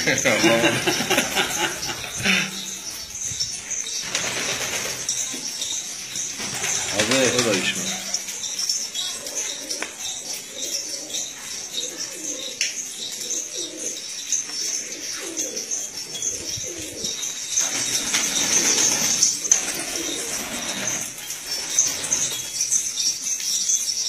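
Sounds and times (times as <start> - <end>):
pigeons cooing: 0.0 - 23.6
wings flapping: 4.0 - 8.4, 17.6 - 22.6.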